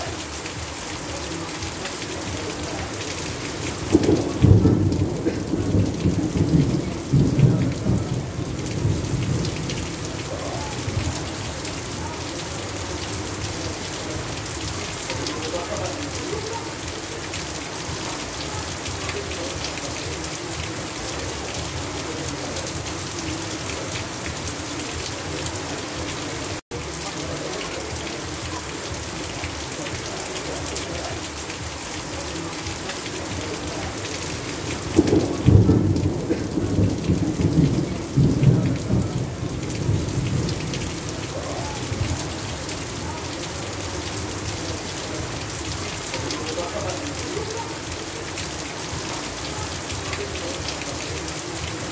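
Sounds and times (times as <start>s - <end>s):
heavy rain pouring: 0.0s - 51.9s
water streaming off a roof: 0.0s - 51.9s
thunder rumbling: 2.2s - 26.6s, 33.2s - 43.0s.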